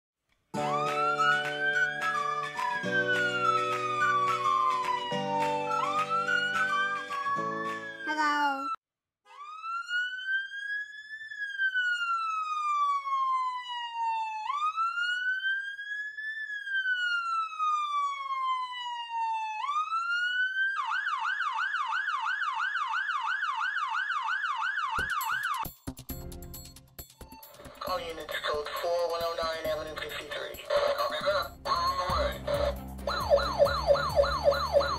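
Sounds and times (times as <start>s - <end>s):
toy fire engine siren wailing: 0.7s - 25.6s, 27.3s - 34.9s
intro music: 25.6s - 34.9s.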